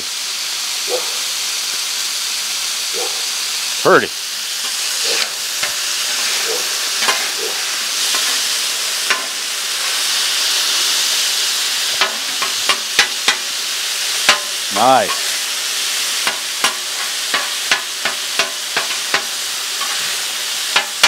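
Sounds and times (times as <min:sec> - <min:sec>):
meat sizzling on griddle: 0:00.0 - 0:21.0
metal spatula scraping griddle: 0:04.6 - 0:10.8, 0:16.2 - 0:21.0.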